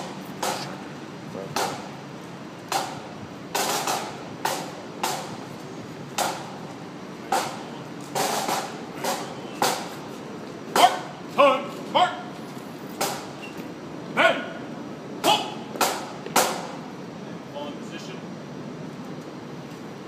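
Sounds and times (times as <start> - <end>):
drums beating slowly: 0.0 - 11.4, 15.2 - 17.1.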